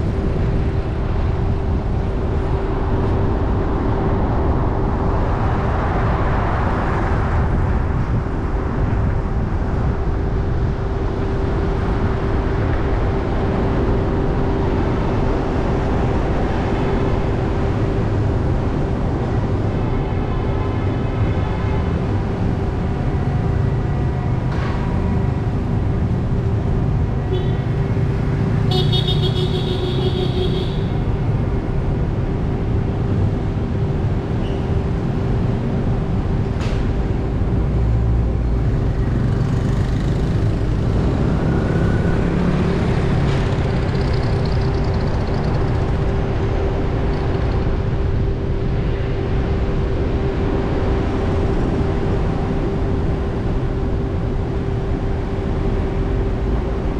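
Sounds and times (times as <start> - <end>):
car engine and tyre rumble: 0.0 - 56.9
high-pitched vehicle horn: 27.2 - 27.8, 28.6 - 31.0.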